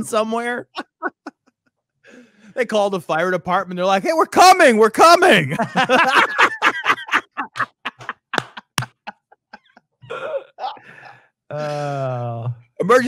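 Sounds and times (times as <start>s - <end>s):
men laughing hard: 0.7s - 1.4s, 5.5s - 11.2s.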